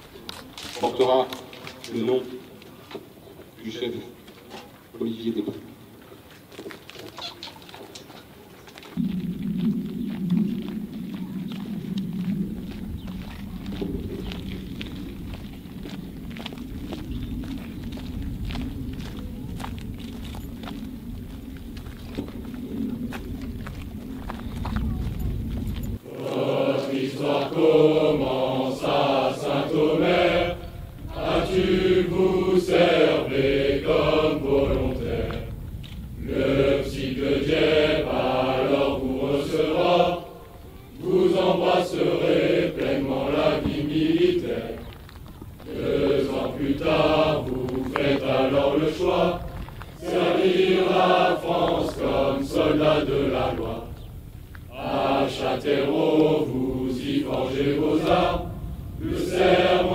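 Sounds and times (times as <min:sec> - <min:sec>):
group singing in unison: 0:26.0 - 0:35.6, 0:36.2 - 0:45.0, 0:45.6 - 0:54.1, 0:54.7 - 0:59.9.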